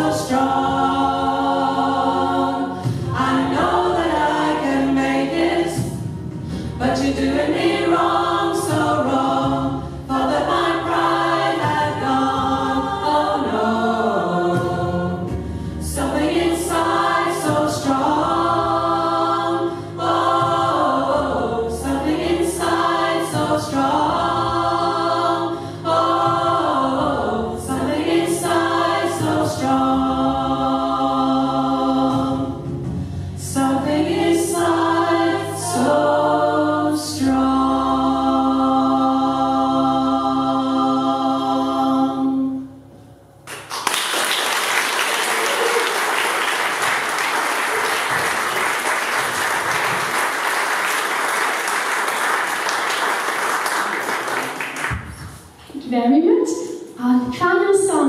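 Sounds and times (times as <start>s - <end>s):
choir singing in harmony: 0.0s - 43.1s, 44.6s - 55.6s
audience applause: 43.5s - 55.4s.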